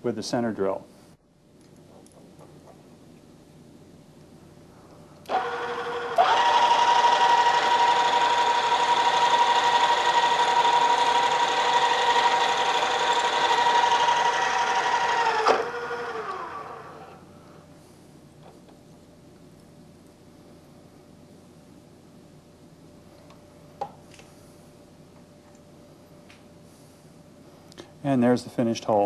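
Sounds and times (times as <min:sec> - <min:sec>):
drill boring through metal: 0:05.3 - 0:17.2
drill press motor whining: 0:05.3 - 0:17.2.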